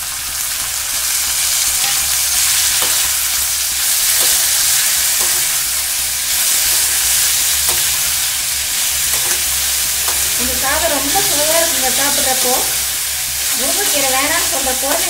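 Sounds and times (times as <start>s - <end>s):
vegetables sizzling in hot oil: 0.0s - 15.0s
metal spoon scraping pan: 6.4s - 10.4s.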